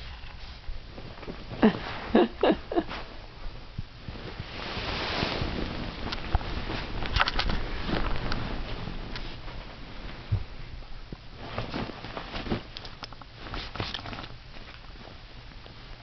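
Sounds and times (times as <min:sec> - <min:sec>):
scuffling and rustling: 0:02.8 - 0:15.9.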